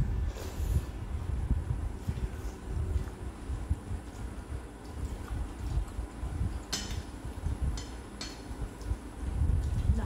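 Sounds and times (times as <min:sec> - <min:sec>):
fingers mixing rice on steel plates: 0:04.0 - 0:09.9.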